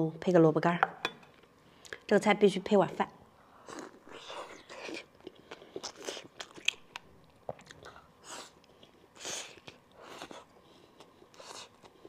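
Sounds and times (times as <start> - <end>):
wet chewing sounds: 3.6 - 12.0.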